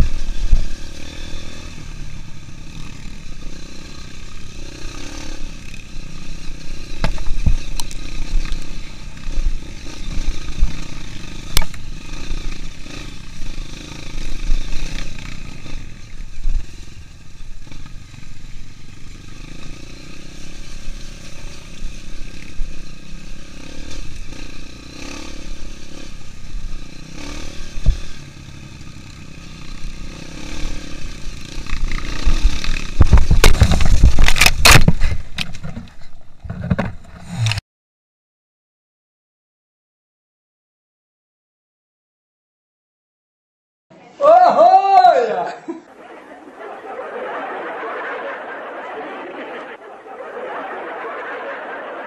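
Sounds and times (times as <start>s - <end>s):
motorcycle engine running: 0.0s - 37.6s
bike clatter: 31.7s - 37.6s
motorcycle crashing into bushes: 31.8s - 35.6s.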